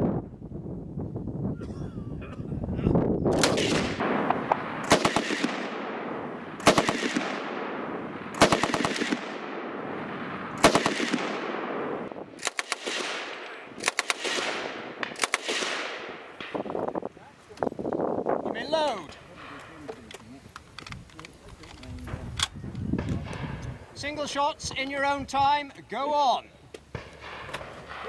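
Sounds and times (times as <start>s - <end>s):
echoing decay: 3.3s - 16.9s, 26.9s - 28.0s
machine gun bursts: 4.8s - 5.6s, 6.6s - 7.3s, 8.4s - 9.2s.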